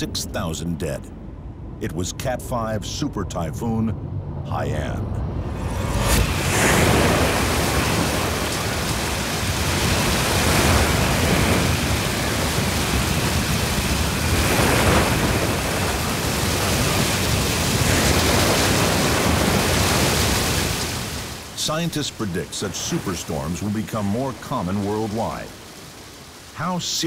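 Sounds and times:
strong wind: 0.0 - 21.6
driving rain: 5.5 - 27.0.

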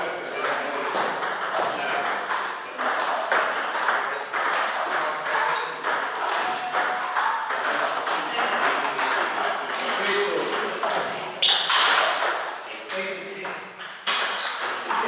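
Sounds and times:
table tennis ball clicks: 13.8 - 15.0.

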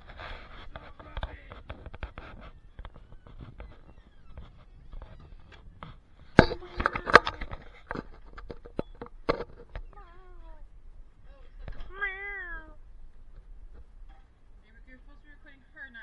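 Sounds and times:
footsteps: 0.0 - 12.0
camera handling knocks and clicks: 0.7 - 10.0.

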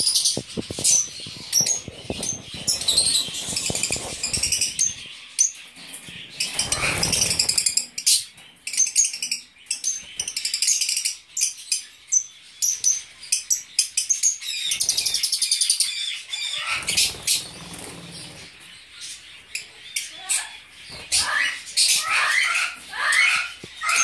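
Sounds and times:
lovebirds chirping: 0.0 - 24.0
rustling: 0.1 - 5.1.

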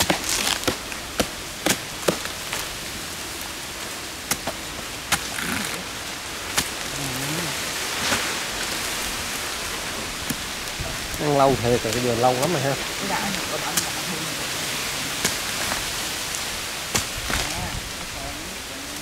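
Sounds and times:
machetes chopping wood: 0.0 - 2.3, 16.9 - 17.5
steady hiss: 0.0 - 19.0.

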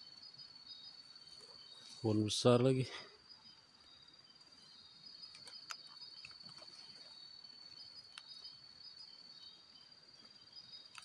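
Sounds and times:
night insects trilling: 0.0 - 11.0.

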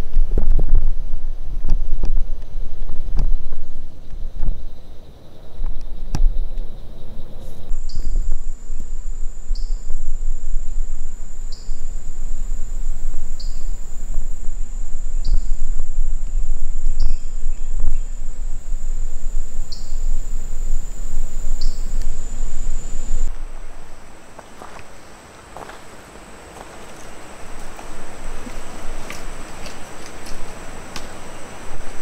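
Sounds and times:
short lower insect call: 3.6 - 32.0
insect high-pitched trill: 4.2 - 25.7
low rumble: 5.5 - 24.1.

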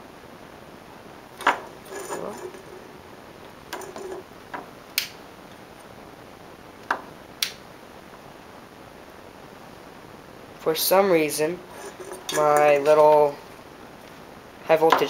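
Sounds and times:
small objects clicking and knocking: 1.4 - 2.9, 3.7 - 5.1, 11.7 - 13.2.

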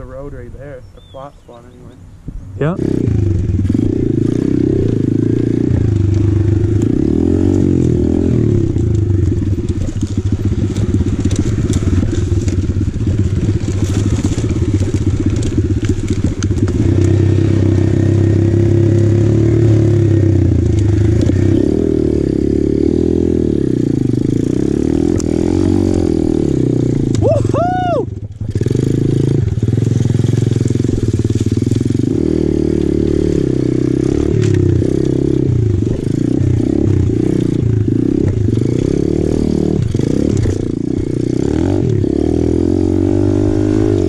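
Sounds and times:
pit bike engine revving: 2.6 - 44.0
sticks crackling under wheels: 6.0 - 17.4.

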